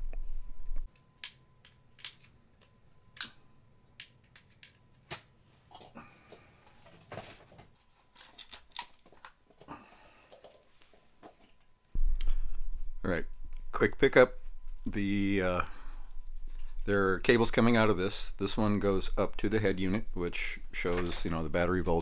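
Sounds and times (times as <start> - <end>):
low rumble: 12.0 - 19.1.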